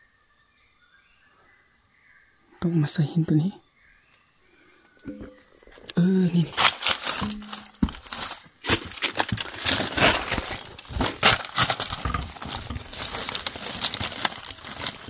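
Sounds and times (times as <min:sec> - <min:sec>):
dry leaves rustling and crackling: 0:05.1 - 0:15.0.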